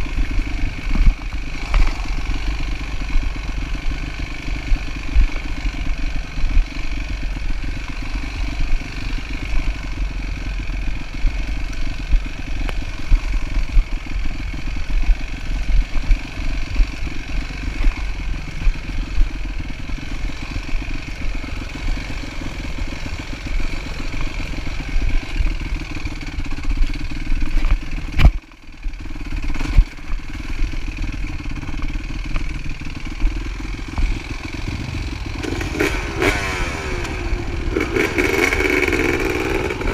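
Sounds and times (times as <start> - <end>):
dirt bike engine running: 0.0 - 39.9.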